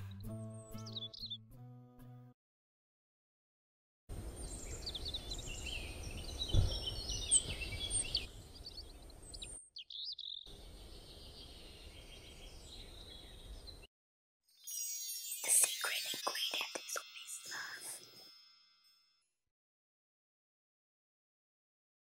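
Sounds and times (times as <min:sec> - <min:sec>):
small birds chirping: 0:00.7 - 0:01.4, 0:04.2 - 0:13.9, 0:15.2 - 0:18.1
outdoor background hiss: 0:04.1 - 0:09.5, 0:10.5 - 0:13.8.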